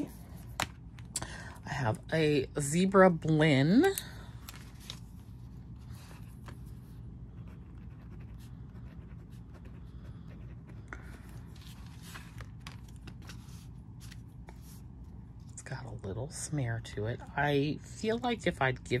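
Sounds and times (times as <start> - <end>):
pen scratching on paper: 7.4 - 10.8.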